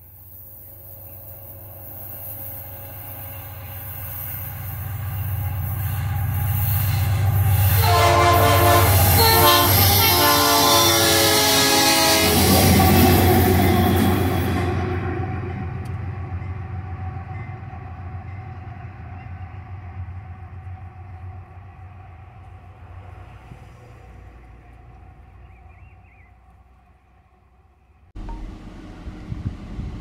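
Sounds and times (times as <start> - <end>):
locomotive engine drone: 0.0 - 30.0
multi-tone air horn blasts: 7.5 - 13.9.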